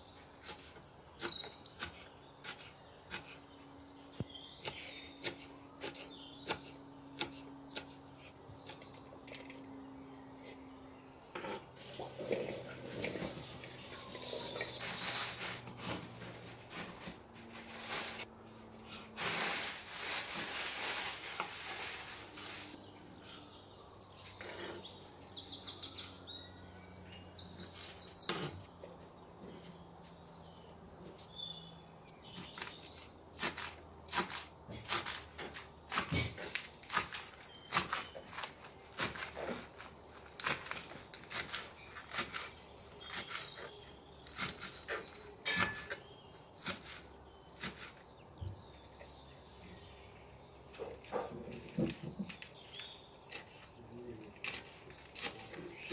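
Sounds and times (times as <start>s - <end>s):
birds chirping: 0.0s - 55.9s
knife cutting lettuce: 0.4s - 3.4s, 4.6s - 8.8s, 32.3s - 48.0s, 54.3s - 55.9s
knife cutting tomato: 0.4s - 3.4s, 4.2s - 8.9s, 32.3s - 46.0s.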